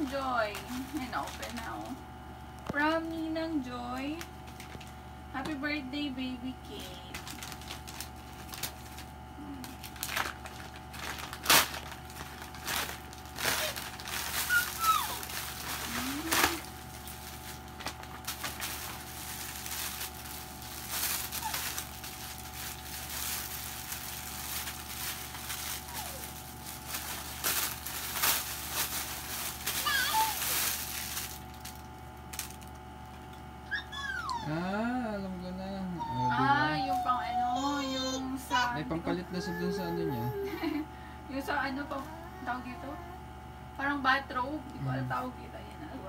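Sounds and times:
plastic packaging crinkling: 0.0s - 2.0s, 2.7s - 5.0s, 6.7s - 33.6s.

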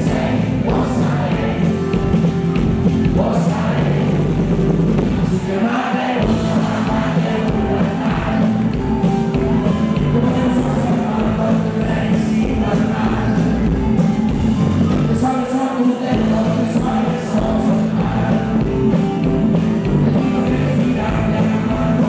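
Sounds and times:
man singing: 0.0s - 2.1s, 3.0s - 4.2s, 5.1s - 8.7s, 9.8s - 13.7s, 14.9s - 19.1s, 19.8s - 22.0s
electric bass: 0.0s - 5.4s, 6.2s - 15.3s, 16.2s - 22.0s
drums: 0.0s - 22.0s
guitars: 0.0s - 22.0s.

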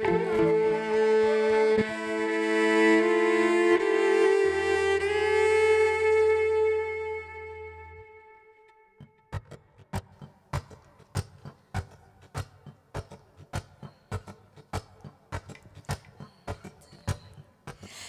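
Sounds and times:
acoustic guitar taps and strums: 9.0s - 17.8s.

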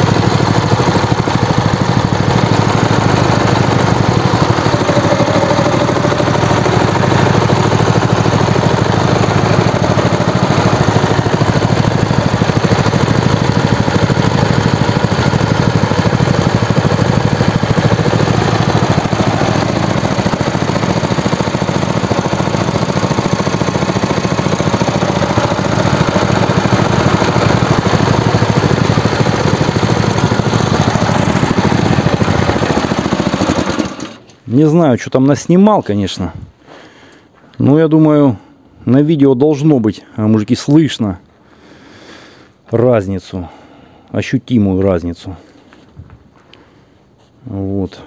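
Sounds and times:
small petrol engines running: 0.0s - 35.1s.

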